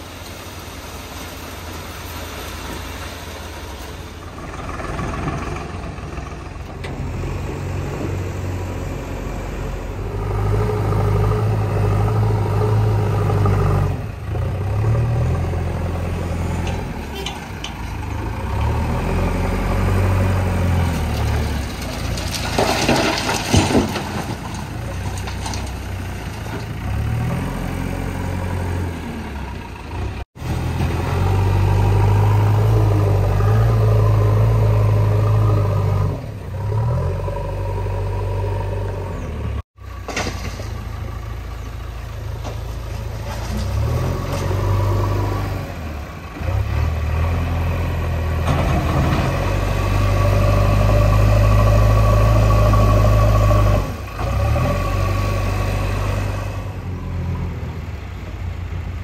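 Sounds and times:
diesel engines revving: 0.0s - 59.0s
rattling and scraping: 20.9s - 26.9s.

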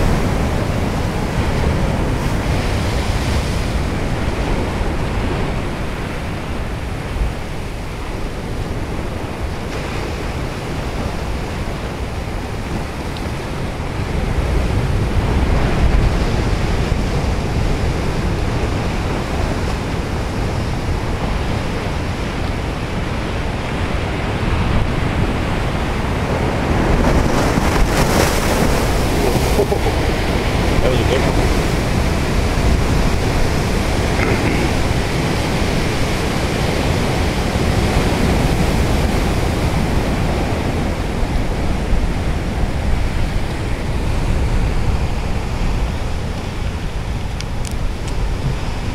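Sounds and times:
ocean surf breaking on rocks: 0.0s - 48.9s
wind buffeting microphone: 0.0s - 48.9s.

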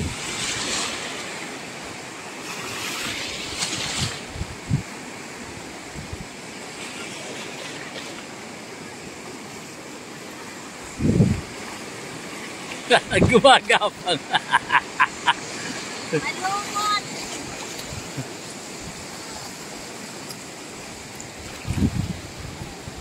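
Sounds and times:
wind on microphone: 0.0s - 1.1s, 3.0s - 5.0s, 5.6s - 6.3s, 10.8s - 11.7s, 13.0s - 13.4s, 21.3s - 23.0s
surf washing around rocks: 0.0s - 23.0s.

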